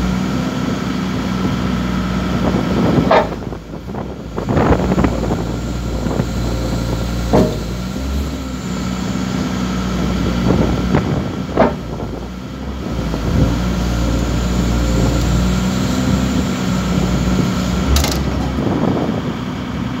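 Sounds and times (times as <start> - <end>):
excavator diesel engine running: 0.0 - 20.0
metal clanks and creaks: 2.9 - 3.7, 4.5 - 8.3, 11.4 - 12.2, 17.8 - 18.9.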